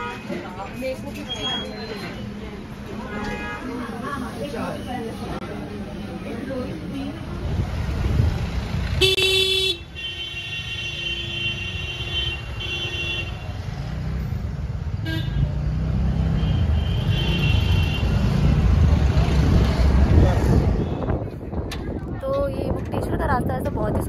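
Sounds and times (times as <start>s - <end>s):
engines and road noise rumble: 0.0s - 24.0s
car horns honking: 9.0s - 13.6s, 15.0s - 15.5s, 16.2s - 18.4s.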